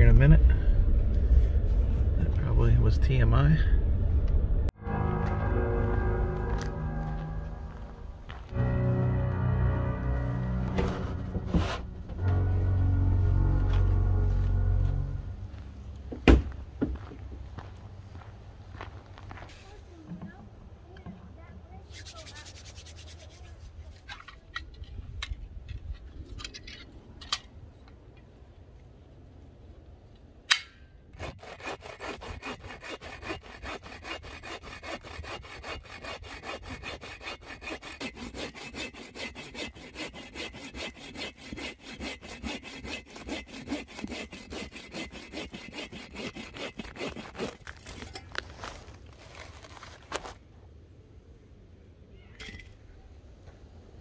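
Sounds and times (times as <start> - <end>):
bow saw cutting log: 31.1 - 48.0.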